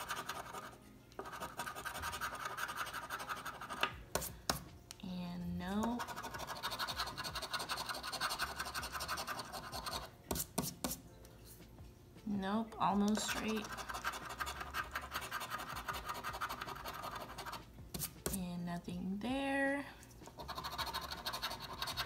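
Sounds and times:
coin scraping a scratch card: 0:00.0 - 0:03.9, 0:06.0 - 0:10.7, 0:13.2 - 0:18.3, 0:20.3 - 0:22.0.

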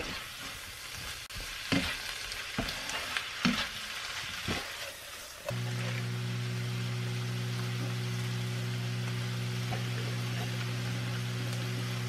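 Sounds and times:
broccoli sizzling in a skillet: 0:00.0 - 0:12.0.

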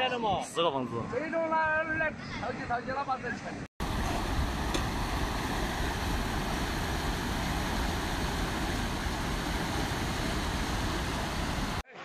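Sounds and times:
floodwater river rushing: 0:03.8 - 0:11.8.

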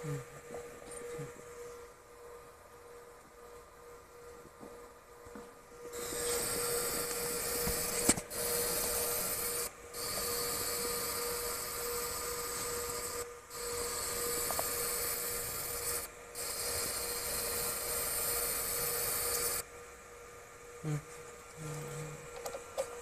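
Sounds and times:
steady machine hum: 0:00.0 - 0:23.0
laser engraving hiss: 0:05.8 - 0:19.7.

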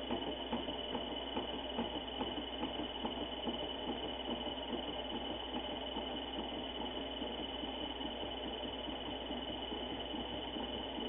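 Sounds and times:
lathe whining and humming: 0:00.0 - 0:11.0.

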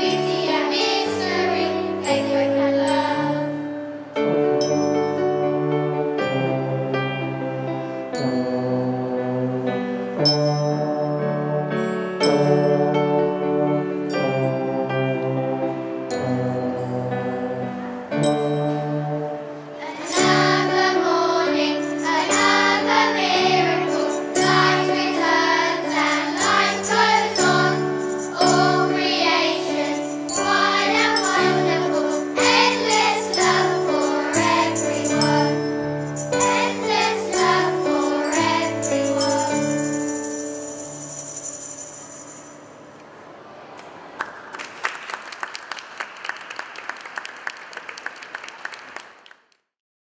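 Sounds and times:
children's choir singing: 0:00.0 - 0:04.3, 0:19.0 - 0:41.6
piano: 0:00.0 - 0:47.6
tambourine jingles: 0:19.9 - 0:21.0, 0:21.6 - 0:42.9.

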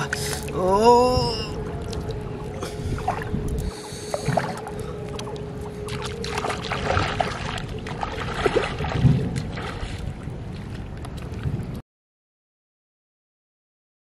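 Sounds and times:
faint steady tone: 0:00.0 - 0:07.8
feet wading and splashing in water: 0:00.0 - 0:11.8.

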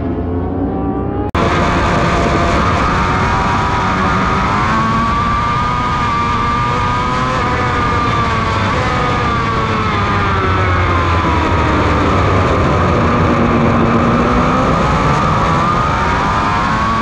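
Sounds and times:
motorcycle engine at high revs: 0:00.1 - 0:17.0
wind noise: 0:01.4 - 0:17.0.

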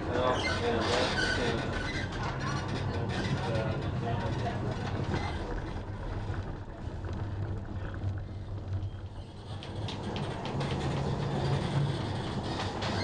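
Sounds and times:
tram motor hum: 0:02.2 - 0:13.0.

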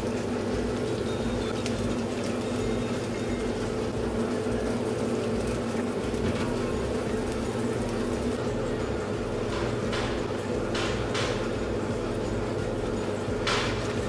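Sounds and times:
kitchen hum and rush: 0:00.0 - 0:14.0
low machine tones: 0:00.0 - 0:14.0.

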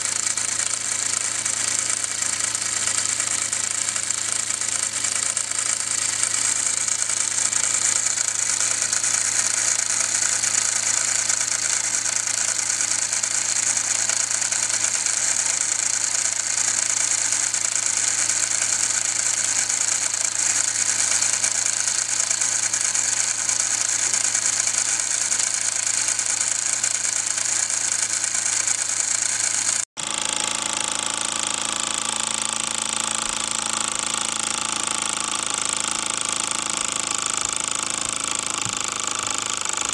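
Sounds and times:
rapid mechanical rattle: 0:00.0 - 0:39.9
toy steam engine running: 0:00.0 - 0:39.9.

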